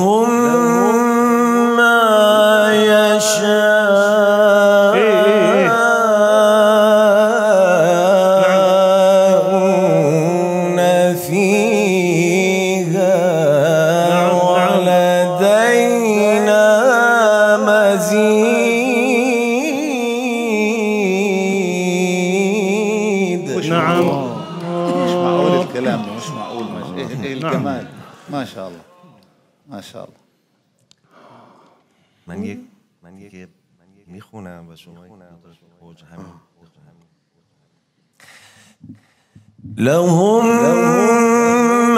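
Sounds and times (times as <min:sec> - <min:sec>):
man chanting melismatic recitation: 0:00.0 - 0:28.0, 0:39.7 - 0:41.9.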